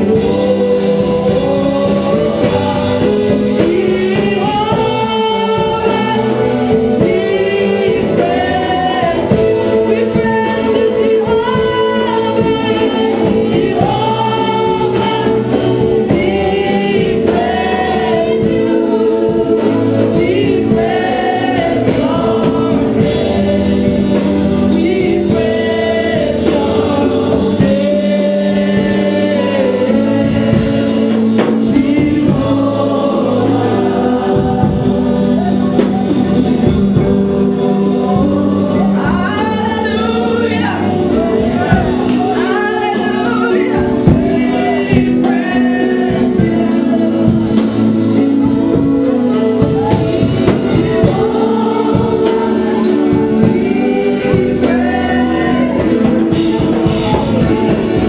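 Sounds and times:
group singing gospel: 0:00.0 - 0:58.0.

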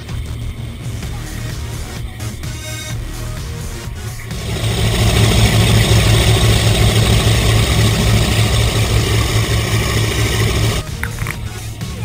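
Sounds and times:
powerboat engines droning: 0:04.1 - 0:11.3
churning wake water: 0:04.3 - 0:10.9.

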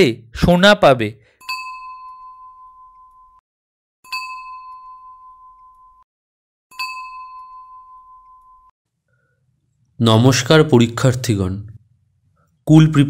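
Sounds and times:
bell-like ding: 0:01.3 - 0:03.4, 0:04.0 - 0:06.1, 0:06.7 - 0:08.8.

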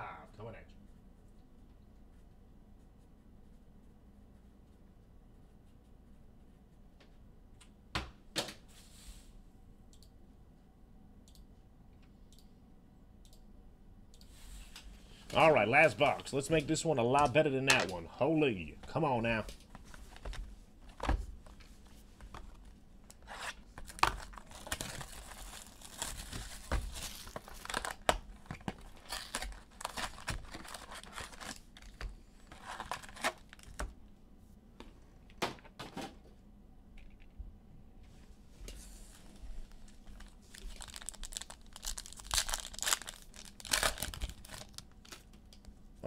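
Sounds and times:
packaging torn and crumpled: 0:23.2 - 0:33.8, 0:39.8 - 0:45.3.

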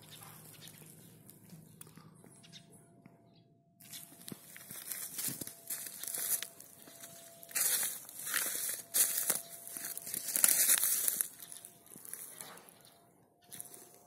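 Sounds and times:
leaves crunching underfoot: 0:03.8 - 0:12.5, 0:13.5 - 0:14.0.

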